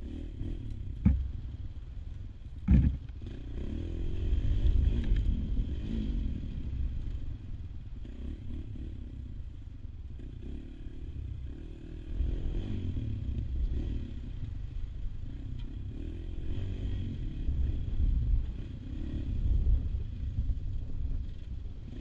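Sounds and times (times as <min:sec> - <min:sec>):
motorcycle clatter: 0:00.0 - 0:01.5, 0:02.1 - 0:03.4
motorcycle engine running: 0:00.0 - 0:22.0.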